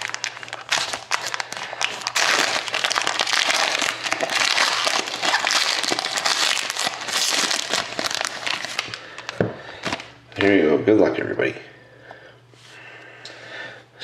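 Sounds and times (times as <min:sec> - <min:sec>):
foil wrapper crinkling: 0:00.0 - 0:10.2.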